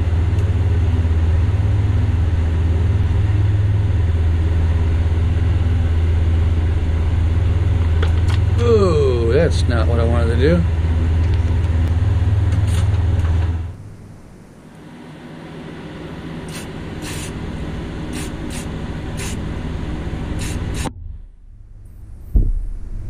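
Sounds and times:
low machine hum: 0.0s - 23.0s
sharp air puffs: 16.4s - 17.4s, 18.1s - 19.4s, 20.3s - 20.9s
spray gun air hiss: 16.5s - 17.4s, 18.1s - 19.4s, 20.4s - 20.9s.

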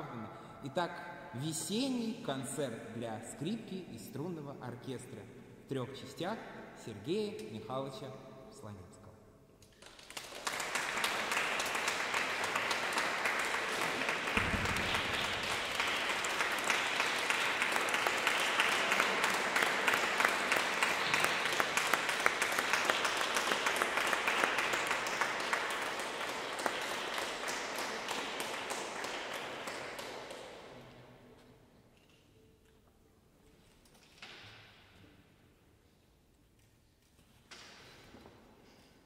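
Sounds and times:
audience applauding: 9.8s - 30.7s.

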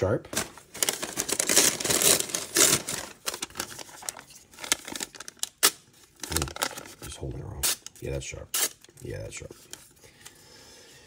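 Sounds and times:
packing paper rustling and crinkling: 0.0s - 8.2s.

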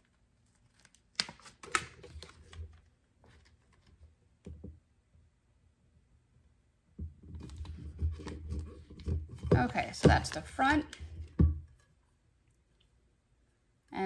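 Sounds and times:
crinkly paper clicks and rustling: 0.0s - 4.1s.

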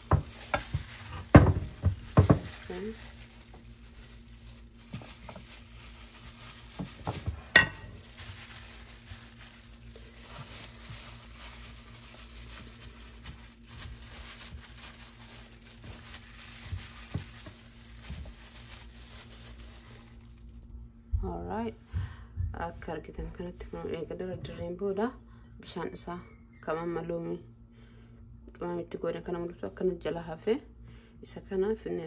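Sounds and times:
plastic glove rustling: 0.0s - 20.7s
faint hum: 0.0s - 32.0s.

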